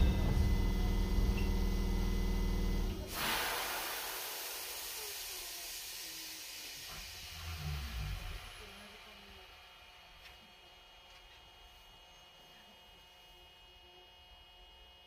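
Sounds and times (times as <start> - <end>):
low machine hum: 0.0 - 3.2
air hissing: 2.9 - 9.4.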